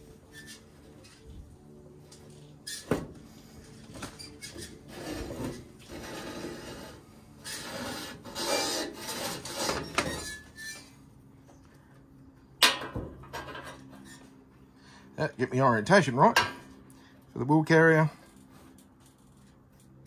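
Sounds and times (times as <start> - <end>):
metal parts scraping on steel: 4.2 - 10.9.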